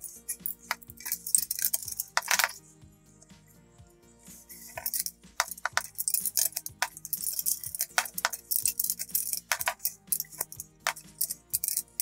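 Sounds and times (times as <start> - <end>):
wrench clicking on metal nut: 4.8 - 12.0.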